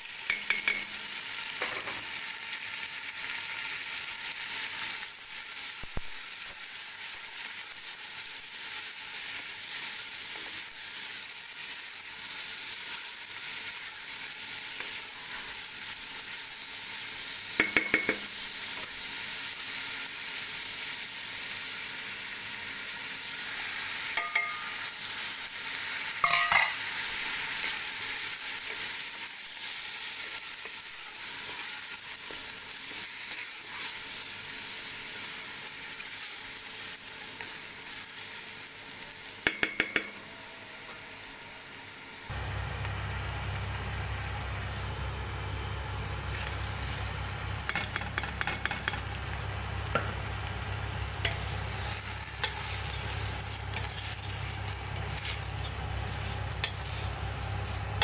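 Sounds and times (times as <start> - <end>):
food sizzling in a pot: 0.0 - 58.0
wooden spoon knocking on pot: 17.6 - 18.3, 39.4 - 40.2, 47.7 - 49.1.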